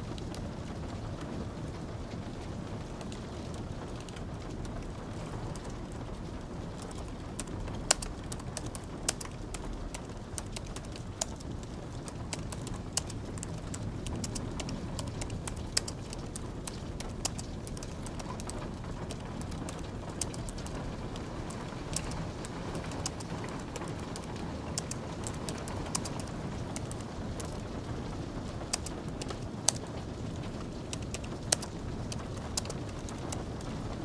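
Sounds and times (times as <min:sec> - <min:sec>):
light rain hiss: 0:00.0 - 0:34.0
keyboard key clicks: 0:28.7 - 0:29.8.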